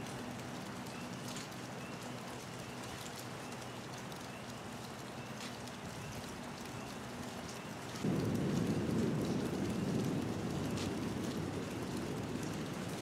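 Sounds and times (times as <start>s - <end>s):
rain pattering: 0.0s - 13.0s
low rumble of thunder: 8.0s - 13.0s.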